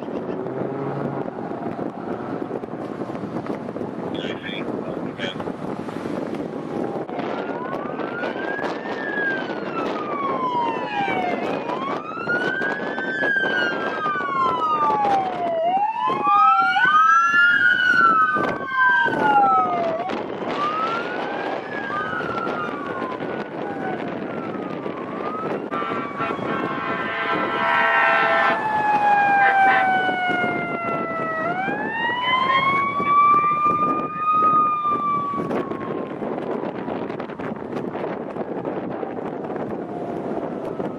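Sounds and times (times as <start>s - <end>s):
fire engine sirens wailing: 0.0s - 40.9s
passing traffic: 0.0s - 40.9s
horn blast: 25.7s - 28.6s, 29.3s - 30.0s.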